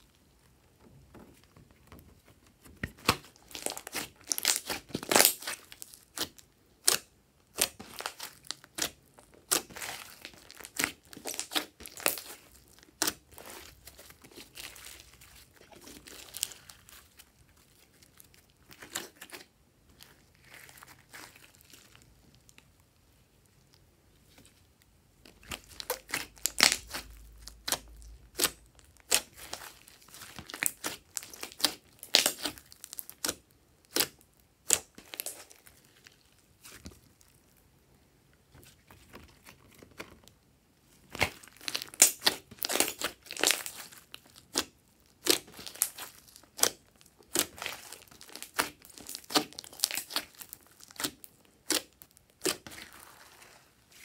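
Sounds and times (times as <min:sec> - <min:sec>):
slime crackling and popping: 0:02.8 - 0:22.6, 0:25.3 - 0:37.6, 0:41.1 - 0:54.0.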